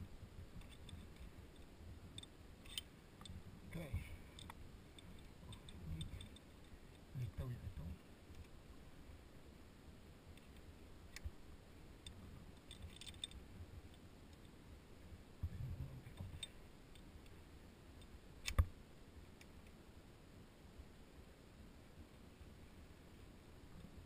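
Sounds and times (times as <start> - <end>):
clinks of metal climbing hardware: 4.2 - 7.0, 12.6 - 13.4.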